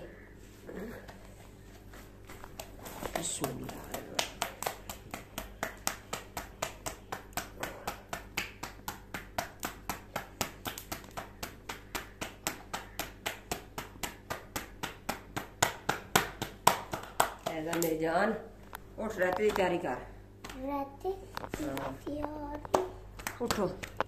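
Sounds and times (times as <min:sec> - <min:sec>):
dough slapped between palms: 0:02.3 - 0:18.2, 0:22.7 - 0:24.0.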